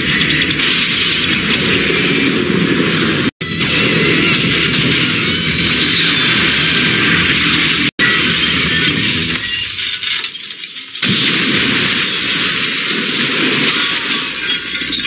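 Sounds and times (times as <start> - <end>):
glass shattering: 8.3 - 11.2, 12.0 - 12.9, 13.7 - 15.0.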